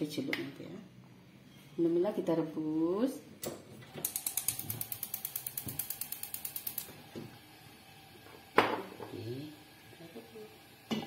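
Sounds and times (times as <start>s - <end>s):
gas stove igniter clicking: 3.4s - 7.4s.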